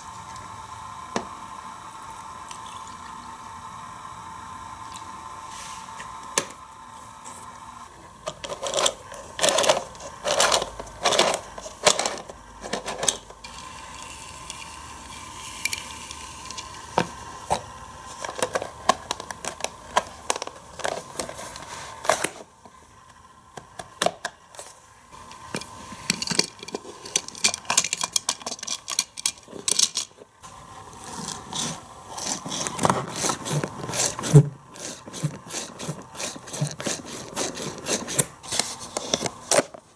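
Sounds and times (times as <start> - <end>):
plastic toy parts clicking: 25.5 - 30.2.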